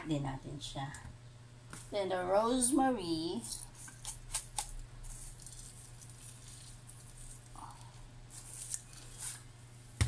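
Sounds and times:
low steady hum: 0:00.0 - 0:10.0
dried leaves rustling: 0:03.4 - 0:09.6.

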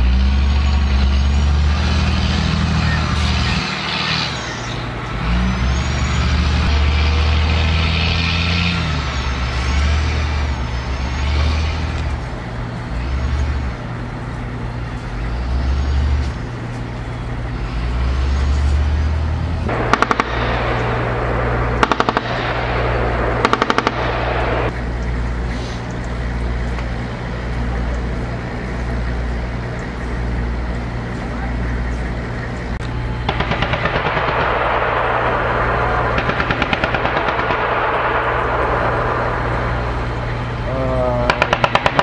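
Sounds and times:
truck engine running: 0:00.0 - 0:42.0
machine-gun fire: 0:19.7 - 0:24.7, 0:33.2 - 0:40.7, 0:41.3 - 0:42.0.

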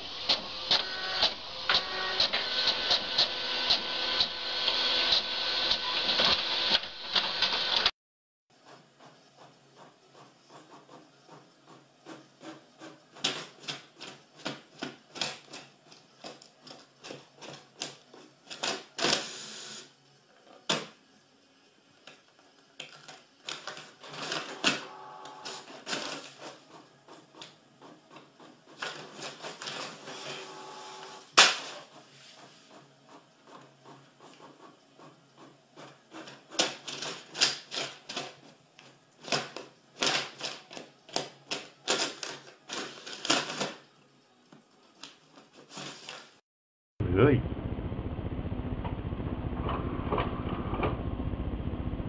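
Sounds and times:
printer motor whine: 0:00.0 - 0:07.9, 0:24.2 - 0:27.0, 0:30.0 - 0:31.4.

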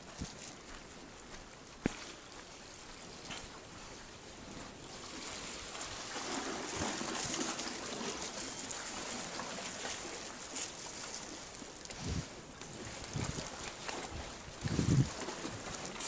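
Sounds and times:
sea water washing among rocks: 0:04.9 - 0:16.0.

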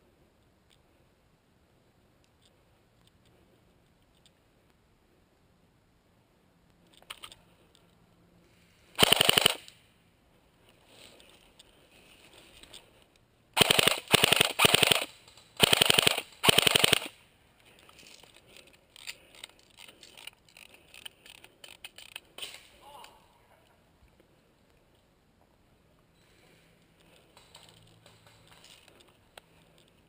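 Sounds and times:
airsoft gun firing bursts: 0:09.0 - 0:09.7, 0:13.6 - 0:17.2.

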